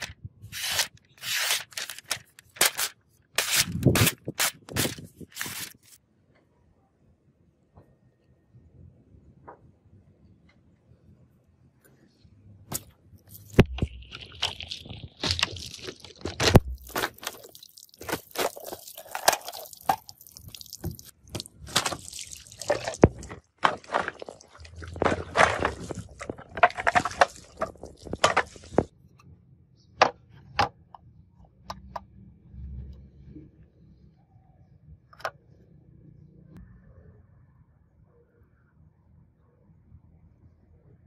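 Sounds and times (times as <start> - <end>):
knife cutting plastic bottles: 0.0 - 6.0, 12.7 - 28.9.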